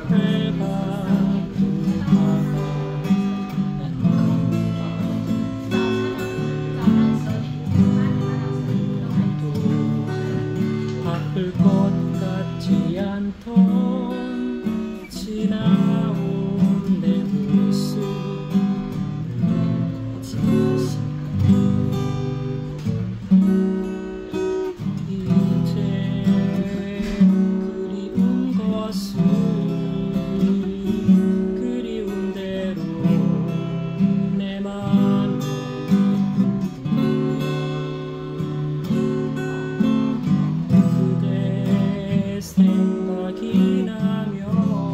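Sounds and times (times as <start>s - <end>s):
fingerpicked acoustic guitar: 0.0s - 44.9s.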